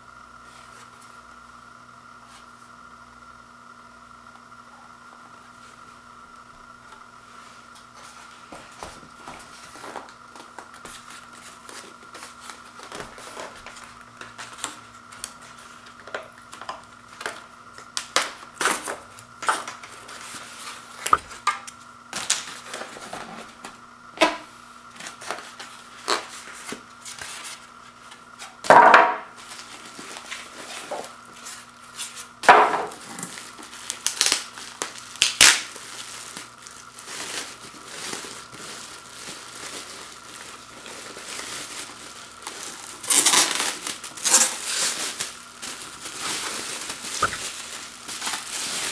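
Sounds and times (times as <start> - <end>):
faint steady hum: 0.0 - 48.9
plastic bag crinkling: 33.3 - 48.9.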